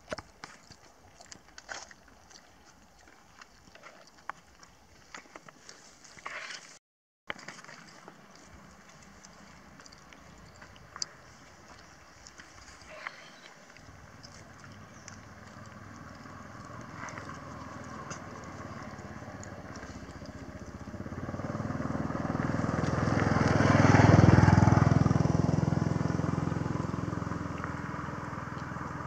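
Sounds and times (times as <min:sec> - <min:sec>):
vehicle engine passing by: 0:13.8 - 0:29.0.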